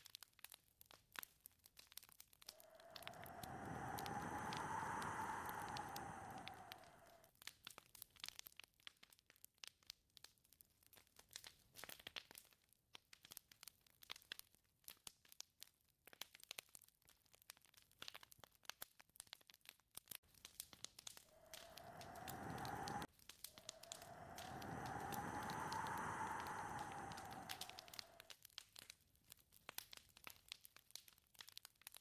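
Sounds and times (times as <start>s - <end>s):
faint irregular crackling: 20.3s - 28.4s.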